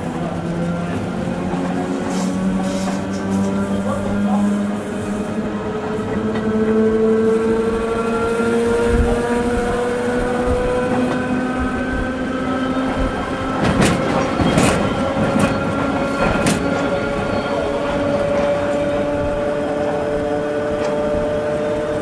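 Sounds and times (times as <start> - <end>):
train whine: 0.0 - 22.0.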